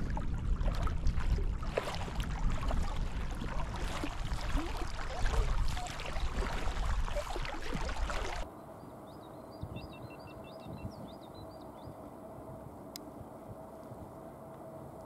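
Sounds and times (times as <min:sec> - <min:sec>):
water splashing and gurgling: 0:00.0 - 0:08.5
bird chirping: 0:08.6 - 0:12.0.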